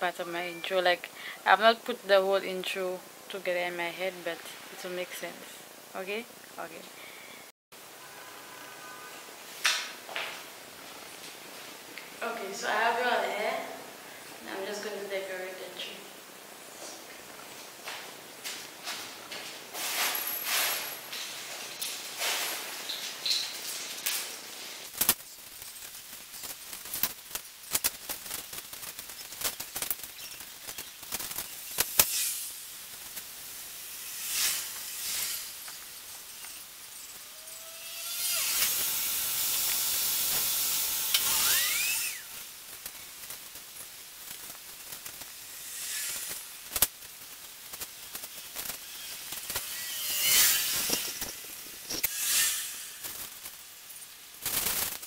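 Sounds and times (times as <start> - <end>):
plastic branches rustling: 18.5 - 37.4.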